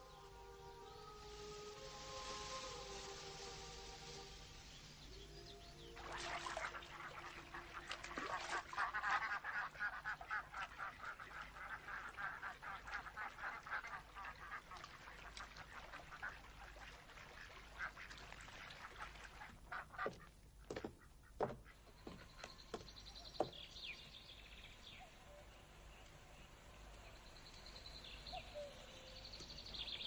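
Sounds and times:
waterfowl flock calling: 0:01.8 - 0:22.9.

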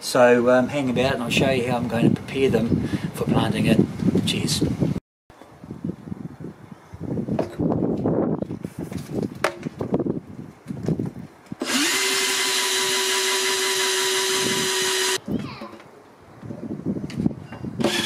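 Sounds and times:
cordless drill boring through wood: 0:11.6 - 0:15.2, 0:17.8 - 0:18.0.

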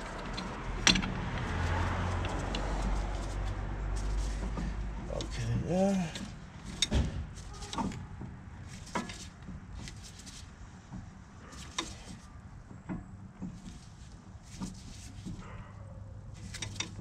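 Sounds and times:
metal brake parts handled: 0:00.0 - 0:10.5, 0:16.3 - 0:17.0.

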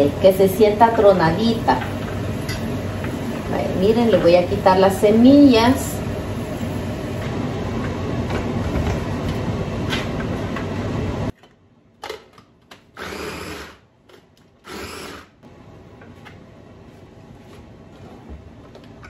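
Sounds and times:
electric food chopper whirring: 0:13.0 - 0:13.8, 0:14.6 - 0:15.4.

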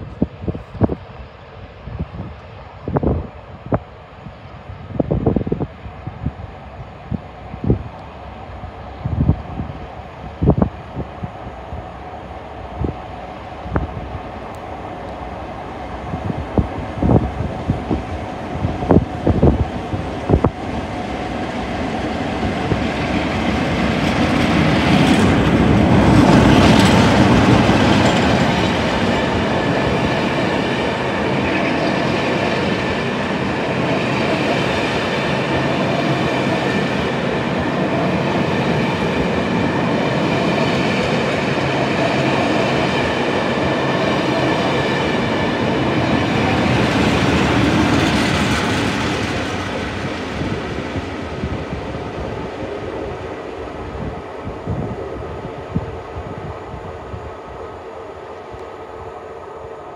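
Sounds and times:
diesel locomotive passing: 0:00.0 - 0:59.9
train coaches clickety-clack: 0:13.6 - 0:54.3.

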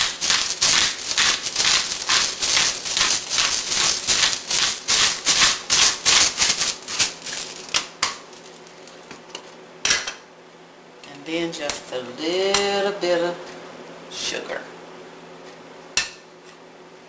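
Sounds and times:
pepper grinder crunching: 0:00.0 - 0:09.1.

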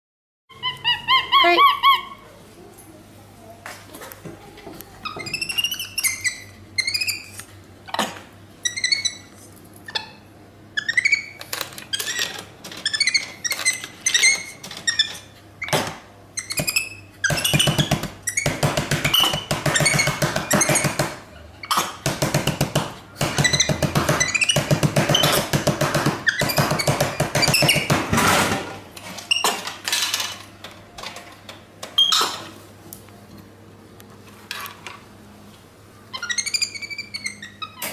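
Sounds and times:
monkey squeaky chirps: 0:00.5 - 0:02.2, 0:05.0 - 0:07.4, 0:08.6 - 0:10.2, 0:10.8 - 0:11.4, 0:36.1 - 0:37.8.

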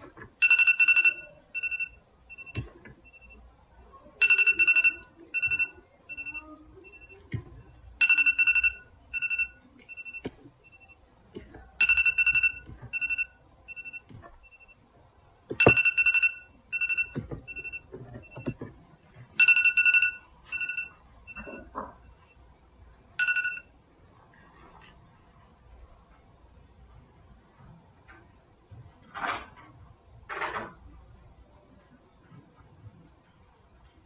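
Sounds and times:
phone ringing: 0:00.3 - 0:03.4, 0:04.2 - 0:07.4, 0:08.0 - 0:11.0, 0:11.8 - 0:14.8, 0:15.5 - 0:18.6, 0:19.4 - 0:21.7, 0:23.2 - 0:23.7.

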